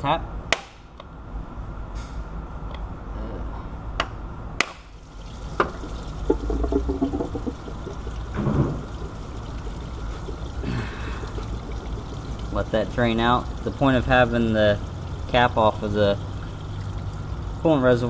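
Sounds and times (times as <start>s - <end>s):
coolant pouring and trickling: 5.0s - 18.0s.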